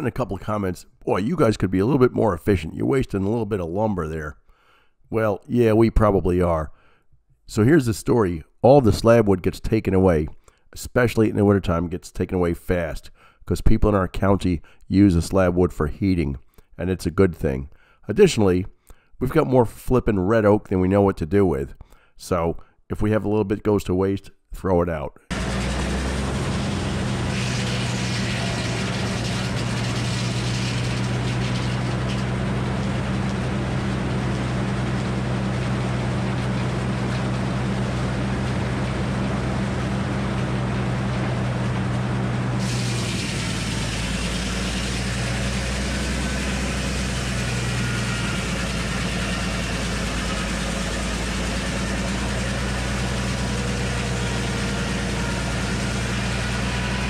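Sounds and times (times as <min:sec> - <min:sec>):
circular sawmill running: 0:25.3 - 0:57.0.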